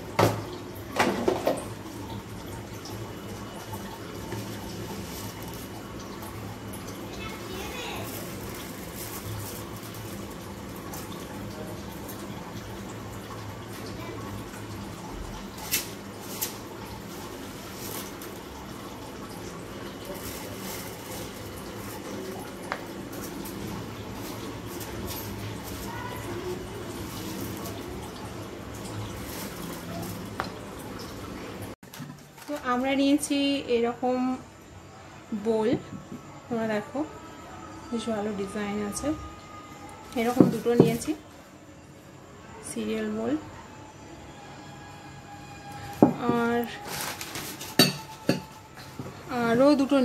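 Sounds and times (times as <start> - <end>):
water splashing in a pot: 0.0 - 33.3, 39.0 - 41.2, 45.8 - 50.0.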